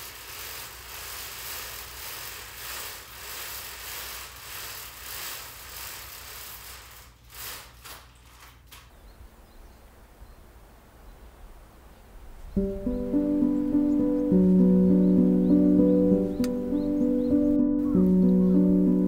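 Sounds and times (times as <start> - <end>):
fabric blind rustling hiss: 0.0 - 8.9.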